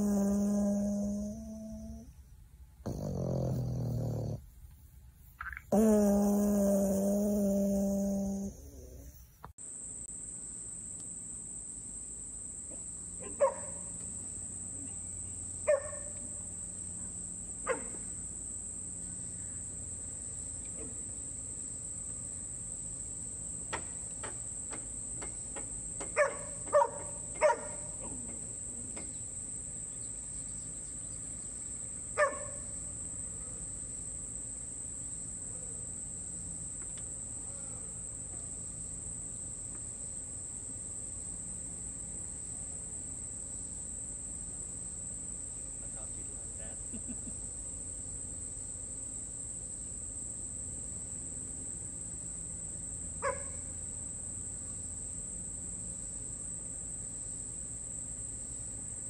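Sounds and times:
dog barking: 0.0 - 2.1, 2.9 - 4.4, 5.7 - 9.1, 13.2 - 13.8, 15.7 - 16.1, 17.7 - 18.0, 26.2 - 27.9, 32.2 - 32.6, 53.2 - 53.6
insect chorus drone: 0.0 - 4.4, 5.4 - 59.0.

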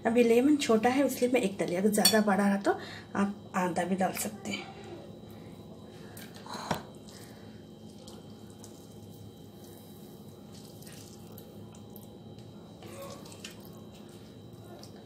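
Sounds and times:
water running from a tap: 10.4 - 12.1, 12.9 - 15.0.

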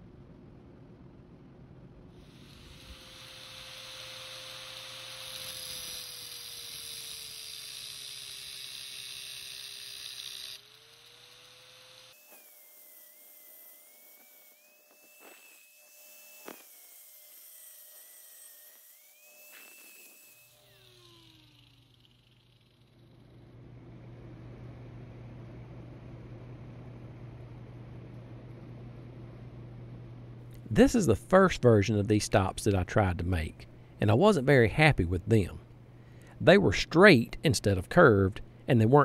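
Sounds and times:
angle grinder cutting steel: 2.2 - 23.4
grinder motor whining: 2.2 - 23.6.

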